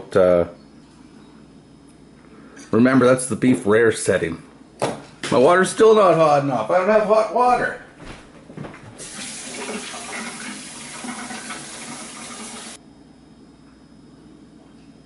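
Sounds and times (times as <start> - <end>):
water running from a tap: 9.0 - 12.8.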